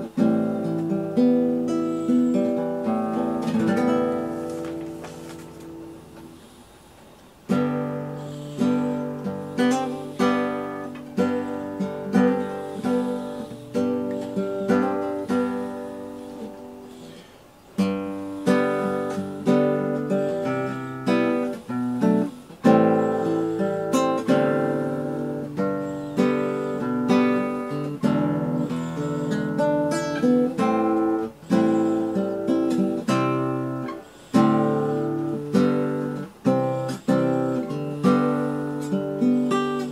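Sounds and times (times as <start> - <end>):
acoustic guitar picking: 0.0 - 39.9.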